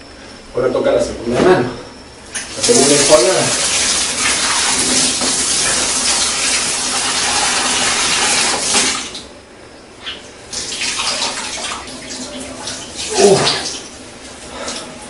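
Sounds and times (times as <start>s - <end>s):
tap water running into sink: 2.4s - 9.2s, 10.5s - 14.0s.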